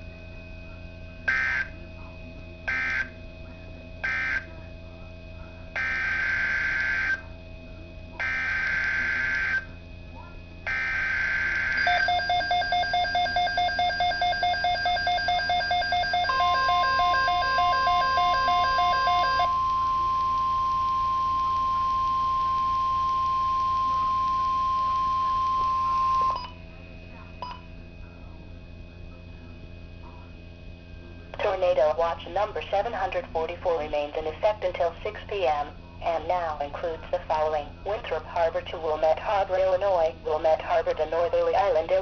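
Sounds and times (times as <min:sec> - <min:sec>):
steady warning alarm tone: 0:00.0 - 0:42.0
pulsing alert radio alarm: 0:00.4 - 0:07.4, 0:08.1 - 0:27.7.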